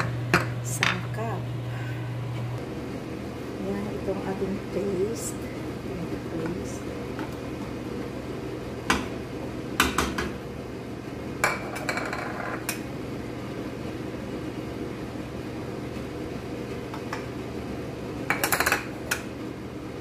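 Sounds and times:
low hum: 0:00.0 - 0:09.6.

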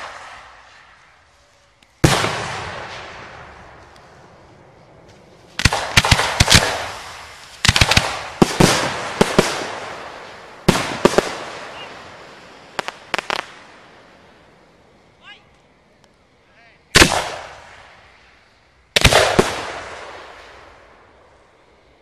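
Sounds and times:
fireworks bangs with echo: 0:00.0 - 0:01.1, 0:02.0 - 0:14.0, 0:16.9 - 0:18.1, 0:19.0 - 0:21.2.

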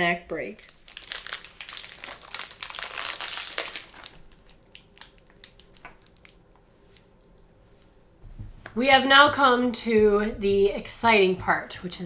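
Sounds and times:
snack wrapper crinkling: 0:00.6 - 0:06.4.

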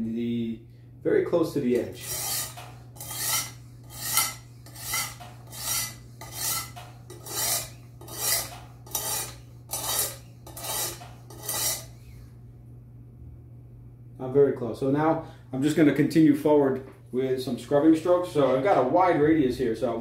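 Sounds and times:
diamond plate scraping steel edge: 0:01.8 - 0:12.0.

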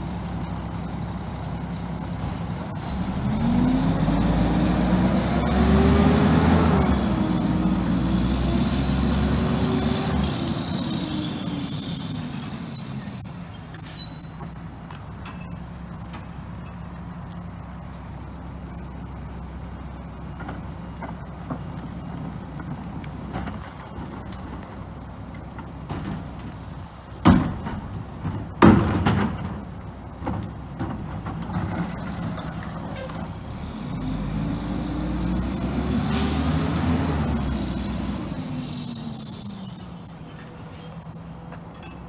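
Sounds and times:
engine revving: 0:02.8 - 0:11.7, 0:33.5 - 0:39.4
loud bangs of cart on hopper: 0:27.2 - 0:29.7.

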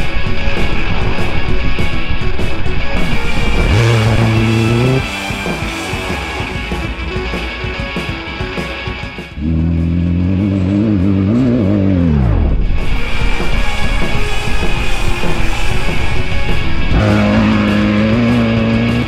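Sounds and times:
tyre noise rushing: 0:00.0 - 0:07.0
race vehicle engine passing by: 0:00.0 - 0:07.1, 0:13.5 - 0:19.0
rock music: 0:00.0 - 0:19.0.

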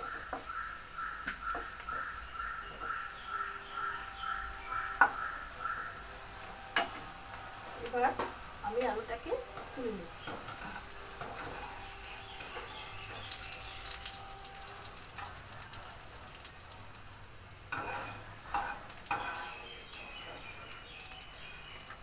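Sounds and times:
potatoes sizzling in oil: 0:00.0 - 0:22.0
metal strainer clinking on pan: 0:17.7 - 0:20.0.

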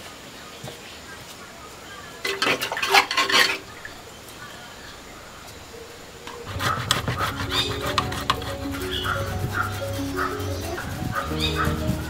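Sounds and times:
metal grater shredding: 0:06.4 - 0:10.7
background music: 0:06.5 - 0:12.0.

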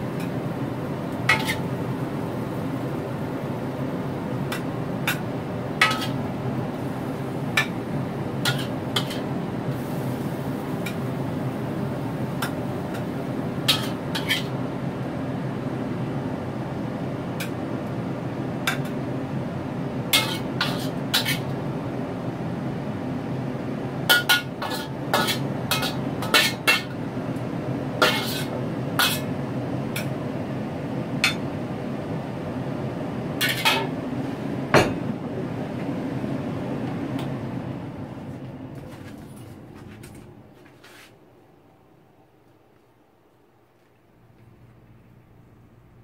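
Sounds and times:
steady low hum: 0:00.0 - 0:46.0
metal utensil scraping in wok: 0:01.3 - 0:01.7, 0:05.8 - 0:06.2, 0:08.4 - 0:09.3, 0:13.7 - 0:14.6, 0:20.2 - 0:21.5, 0:24.1 - 0:26.9, 0:28.0 - 0:29.3.

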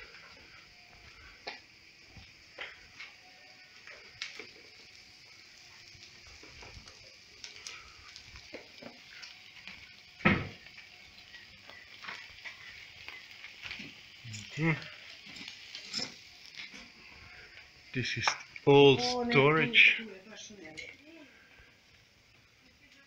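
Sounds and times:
steady high hiss: 0:00.0 - 0:23.0
metal utensil scraping grill grate: 0:15.2 - 0:16.9.

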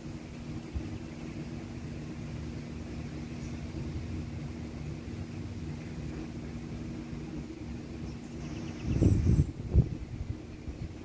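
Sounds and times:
gusty wind through trees: 0:00.0 - 0:11.0
steady low hum: 0:00.0 - 0:11.0
wind buffeting microphone: 0:08.1 - 0:11.0.

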